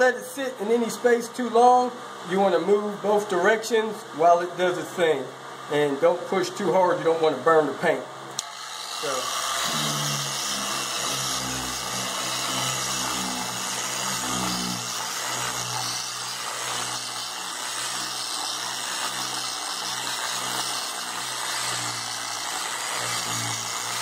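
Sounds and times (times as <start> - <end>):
polisher running: 8.4 - 24.0.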